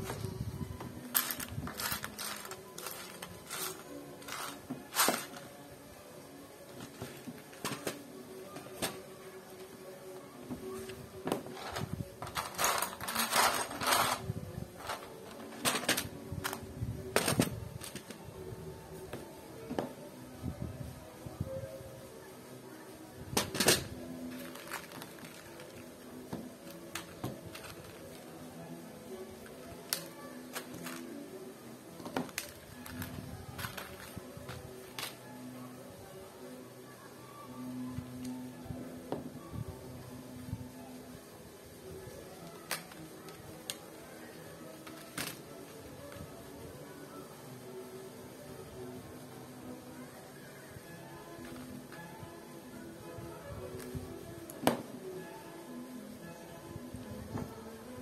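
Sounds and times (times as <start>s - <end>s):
faint background music: 0.0s - 58.0s
plastic bricks clattering: 1.1s - 5.4s.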